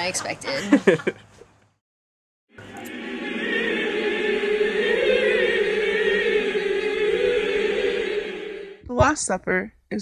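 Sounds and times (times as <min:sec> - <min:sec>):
choir holding sustained chord: 0:02.5 - 0:08.8.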